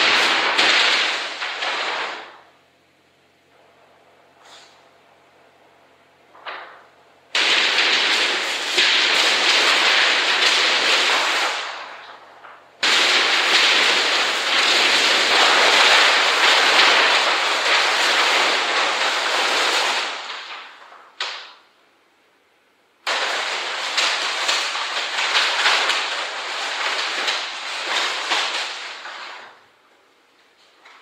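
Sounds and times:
paper crumpling crackling rustle: 0.0 - 2.4, 7.4 - 21.5, 23.1 - 31.0.

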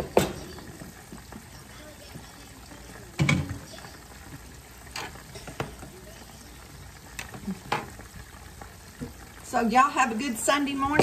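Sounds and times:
utensil knocking on skillet: 0.0 - 0.5, 3.2 - 3.6, 7.2 - 8.0, 10.8 - 11.0
chicken sizzling in a skillet: 0.0 - 11.0.

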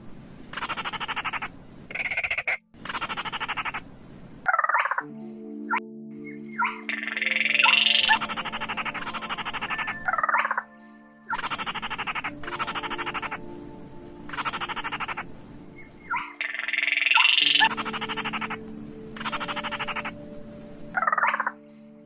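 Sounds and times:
crake calls rattling trills: 0.5 - 3.9, 6.2 - 13.5, 14.3 - 20.3.

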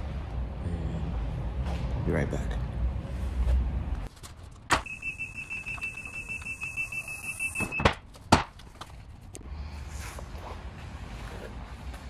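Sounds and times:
rapid high-pitched warning beeping: 4.8 - 7.8.

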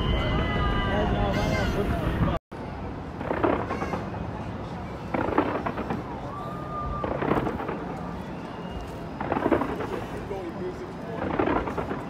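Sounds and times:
fireworks cracking bangs: 3.0 - 12.0.

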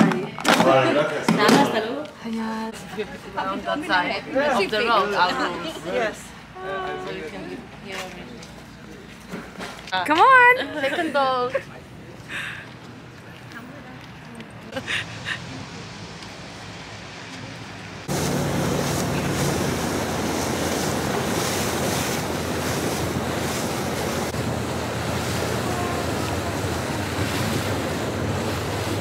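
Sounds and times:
open-air ambience: 0.0 - 29.0
boat engine humming: 9.9 - 29.0
water rushing past hull: 14.8 - 29.0
wind buffeting microphone: 17.9 - 29.0.

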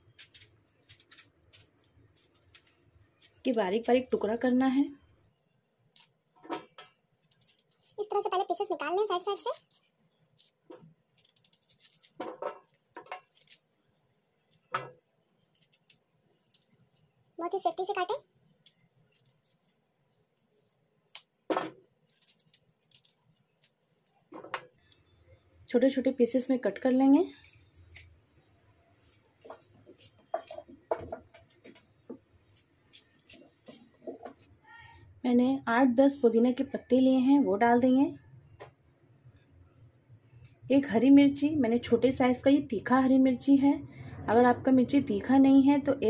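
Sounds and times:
knife cutting mango: 29.0 - 31.0.

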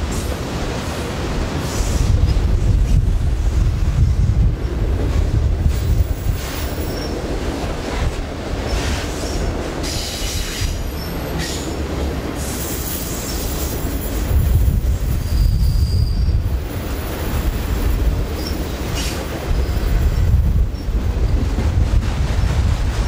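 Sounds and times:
train wheels rumbling on rail: 0.0 - 23.0
high wheel squeals: 15.1 - 16.5.

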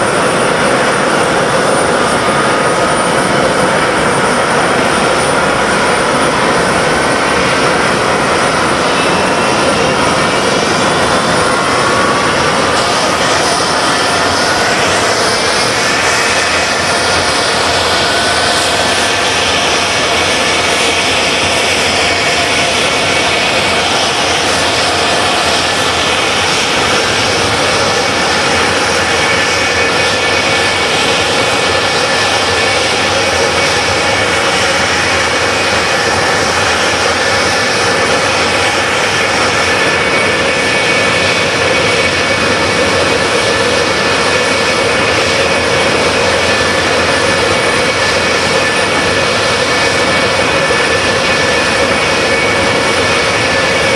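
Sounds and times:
jet engine roar with whine: 0.0 - 53.9.

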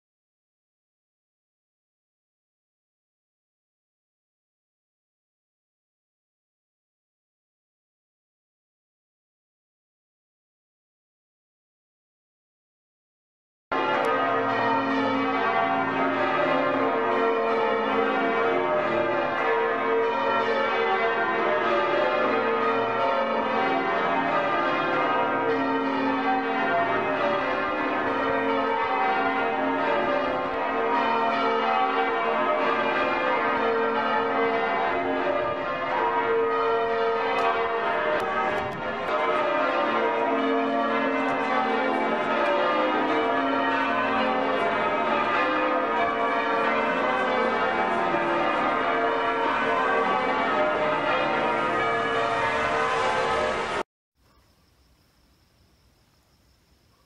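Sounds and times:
church bells ringing: 13.7 - 53.8.

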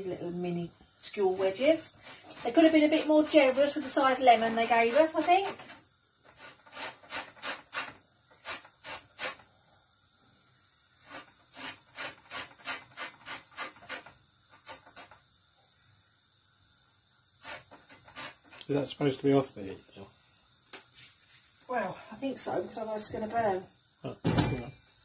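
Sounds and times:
lemon rind rasping on grater: 1.8 - 9.4, 11.0 - 15.2, 17.4 - 18.7.

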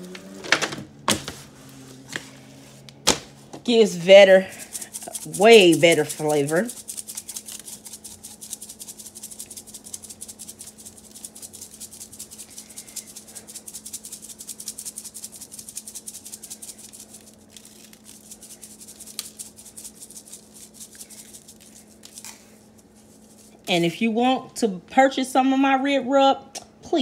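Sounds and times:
spice shaker rattling: 3.7 - 23.9.

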